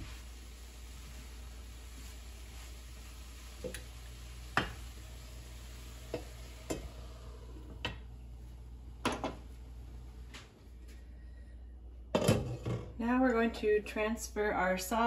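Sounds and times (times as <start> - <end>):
vegetables sizzling: 0.0 - 10.3.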